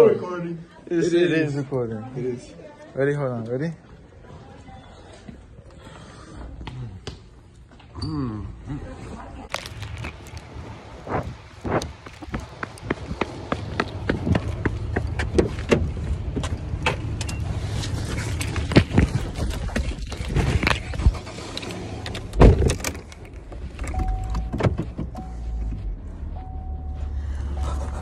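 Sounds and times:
car warning chime beeping: 0:23.9 - 0:28.0.

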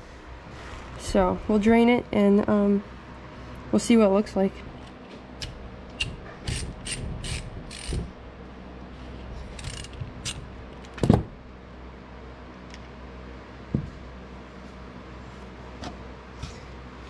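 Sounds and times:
hand tool metallic clicks and scrapes: 0:09.5 - 0:10.4.

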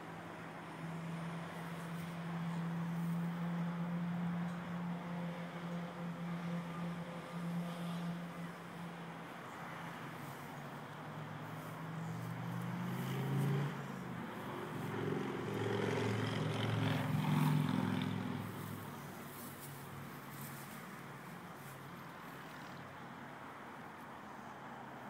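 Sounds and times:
passing vehicle engine hum: 0:00.0 - 0:25.0.

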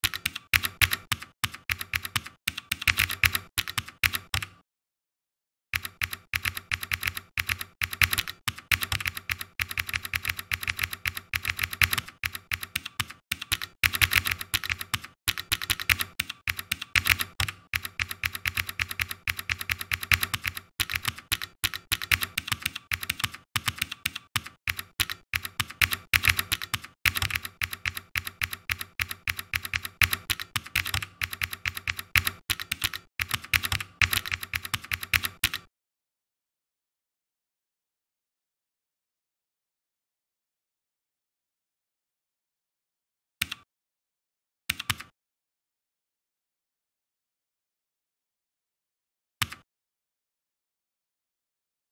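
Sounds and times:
typing on computer keyboard: 0:00.0 - 0:04.6, 0:05.8 - 0:35.7, 0:44.7 - 0:45.1.

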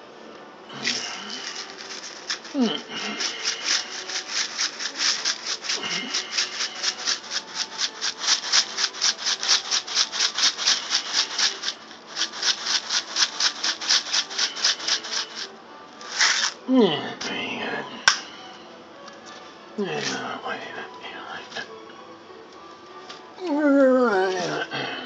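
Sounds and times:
spice shaker rattling: 0:00.7 - 0:16.6.

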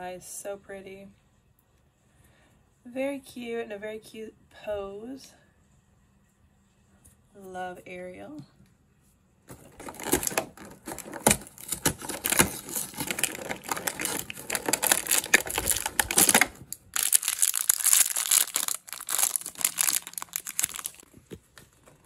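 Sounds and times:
cardboard scraping and snapping: 0:09.5 - 0:22.0
foil bag crinkling and tearing: 0:09.5 - 0:22.0.

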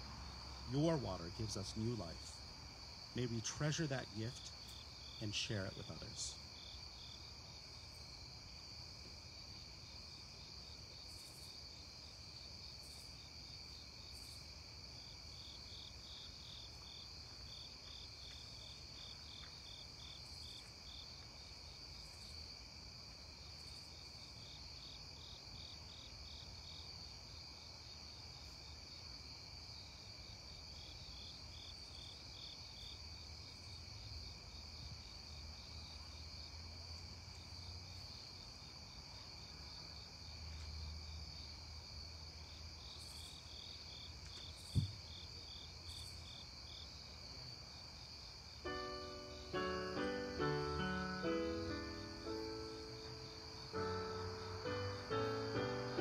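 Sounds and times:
crickets trilling: 0:00.0 - 0:56.0
pulsed cricket chirps: 0:00.0 - 0:56.0.

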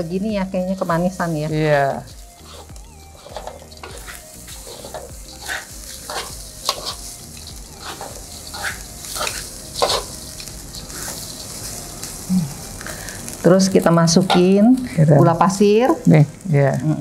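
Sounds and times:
light sizzle: 0:00.0 - 0:17.0
spatula scraping a pan: 0:02.1 - 0:07.1, 0:07.7 - 0:11.6.

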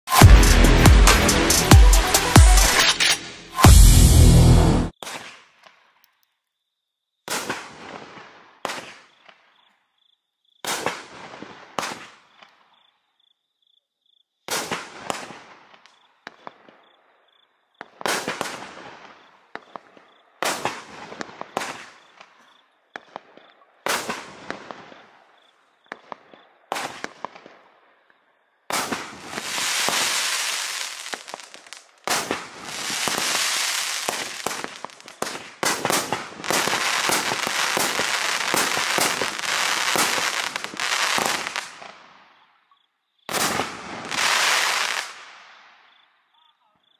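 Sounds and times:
firework bangs with crackle: 0:05.0 - 0:05.5, 0:07.3 - 0:09.4, 0:10.6 - 0:12.5, 0:14.5 - 0:16.8, 0:17.8 - 0:22.4, 0:23.0 - 0:25.1, 0:25.9 - 0:27.6, 0:28.7 - 0:42.1, 0:43.3 - 0:45.7.

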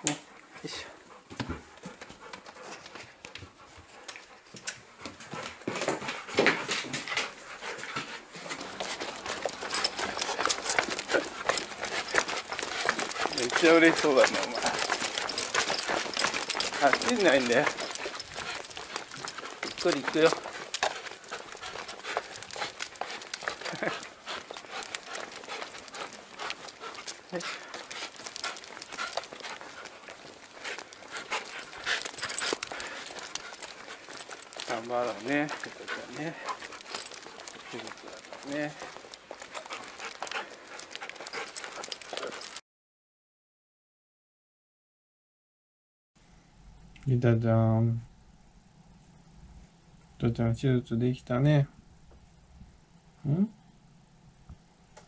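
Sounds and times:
hurried footsteps: 0:00.3 - 0:42.6
dog claws clicking on floor: 0:05.4 - 0:42.6.

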